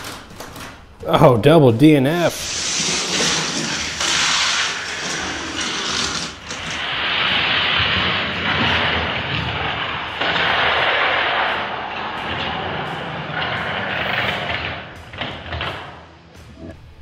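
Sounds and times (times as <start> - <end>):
toy cars rolling on plastic track: 2.4 - 14.8.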